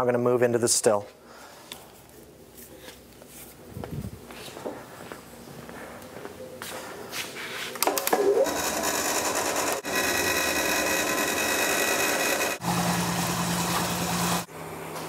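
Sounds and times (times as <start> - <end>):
electric pump motor whine: 7.8 - 15.0.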